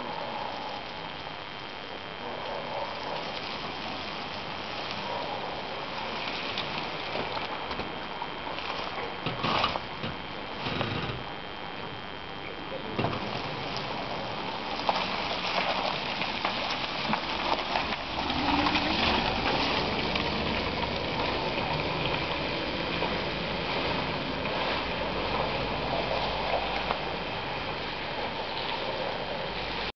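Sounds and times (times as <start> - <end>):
tyres hissing through wet slush: 13.2 - 29.9.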